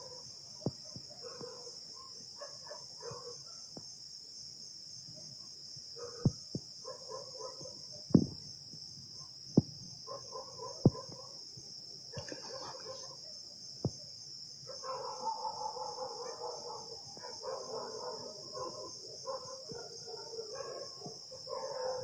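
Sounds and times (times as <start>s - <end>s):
distant dogs barking: 0.0s - 3.7s, 5.2s - 8.1s, 10.1s - 11.4s, 12.2s - 13.4s, 14.6s - 22.0s
night insects chorus: 0.0s - 22.0s.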